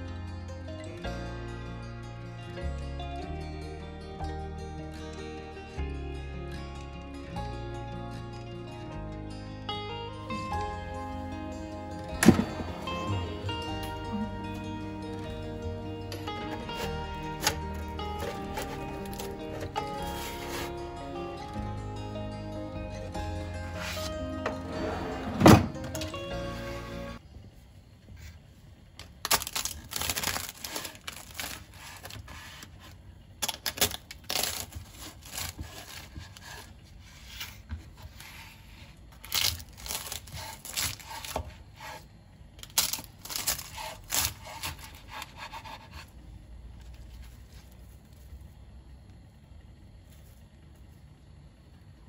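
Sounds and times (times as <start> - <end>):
knife cutting crisp pastry: 16.4 - 20.8, 33.8 - 42.1, 42.7 - 46.2.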